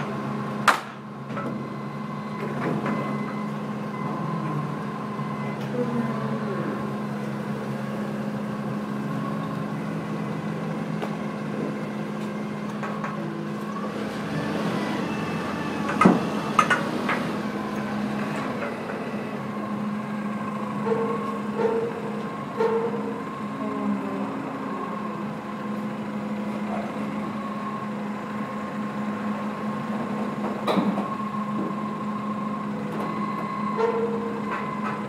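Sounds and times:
forklift engine running: 0.0 - 35.0.

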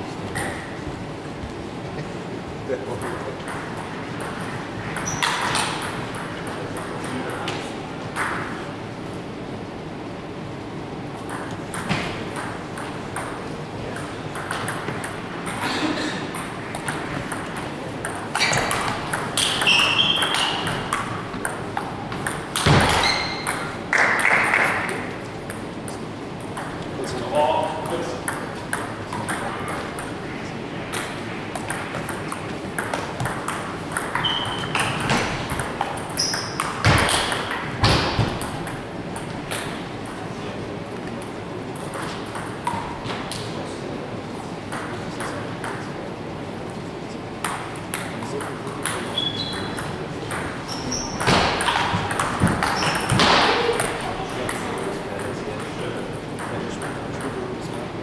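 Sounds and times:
table tennis ball pings: 11.2 - 27.2, 30.9 - 40.2, 47.4 - 55.8.

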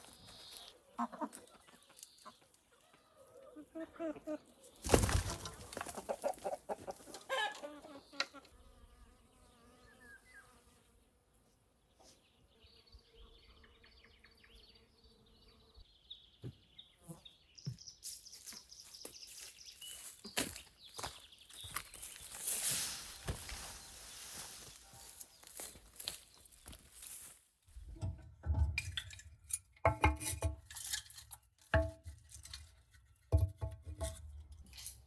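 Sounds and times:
small birds singing: 0.0 - 3.7, 4.3 - 27.2
chickens clucking: 0.4 - 8.5
footsteps on dry path: 17.7 - 27.5.

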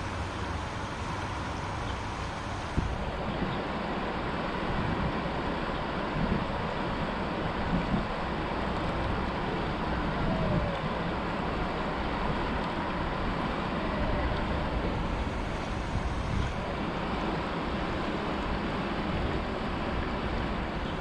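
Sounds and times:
fast-flowing river rushing: 0.0 - 21.0
wind buffeting microphone: 0.0 - 21.0.

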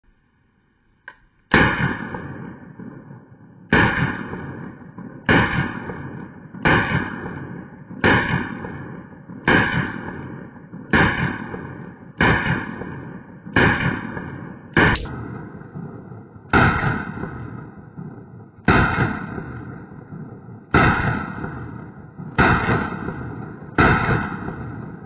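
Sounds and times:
pistol shots: 1.5 - 25.0.

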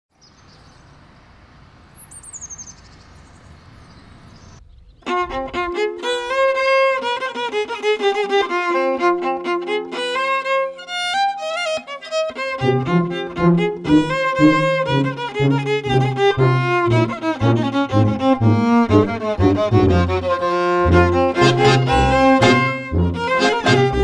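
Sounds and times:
bird chirps: 0.1 - 1.3, 1.9 - 5.1
faint outdoor ambience: 0.1 - 6.5
violin melody with strings: 5.0 - 24.0.

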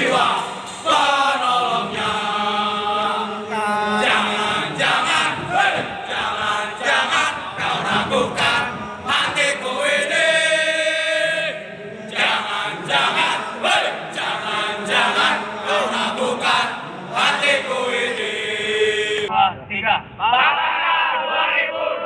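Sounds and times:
men chanting in unison: 0.0 - 19.3.

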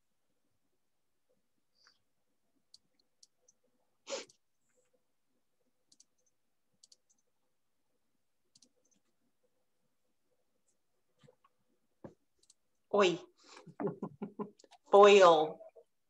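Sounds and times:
faint clicks: 5.9 - 7.3, 8.5 - 9.2.

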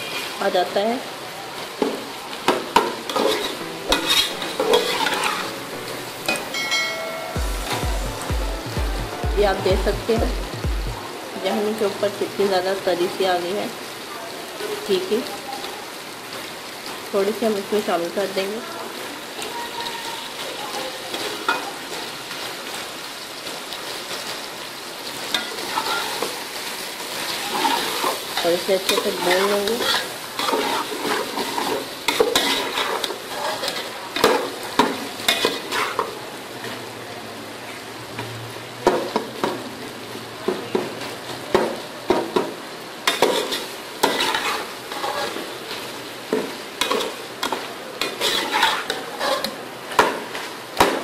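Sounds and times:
food sizzling in a pot: 0.0 - 51.0
metal spatula scraping a pot: 3.1 - 5.6, 27.5 - 34.4, 43.1 - 45.5, 48.0 - 49.6
background music with low beat: 7.3 - 11.0
spoon scraping a steel pot: 48.1 - 49.6.

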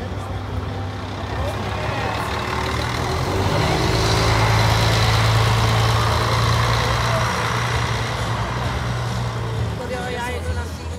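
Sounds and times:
bus diesel engine driving off: 0.0 - 10.9.

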